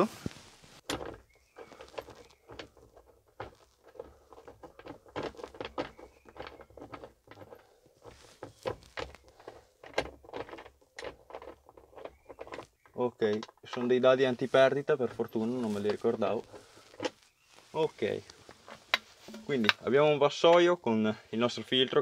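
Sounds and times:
metal nuts clicking and scraping: 0.8s - 17.3s.

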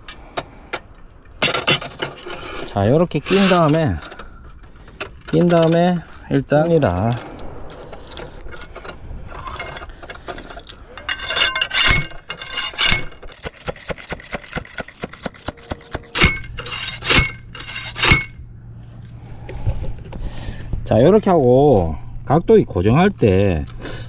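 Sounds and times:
metal clinking and rubbing: 10.6s - 18.4s
sharp clicks: 13.4s - 16.3s.

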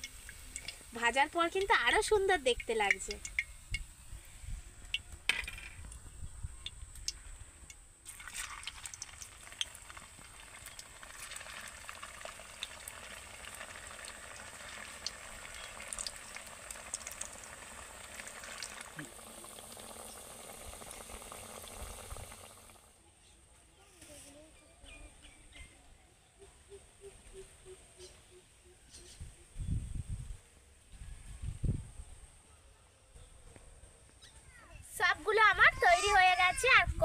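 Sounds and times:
snacks sizzling in hot oil: 0.0s - 4.0s, 8.0s - 22.8s.

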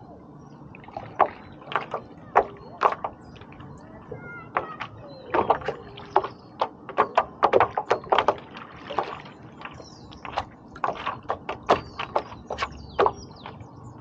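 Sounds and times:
water splashing around paddleboard: 0.6s - 14.0s.

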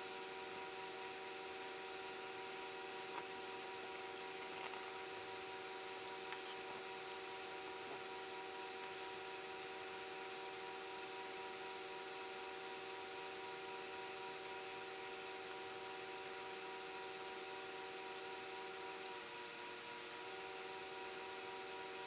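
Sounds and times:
constant tonal hum: 0.0s - 19.1s
tiny ticks: 6.0s - 6.7s, 16.2s - 16.4s.

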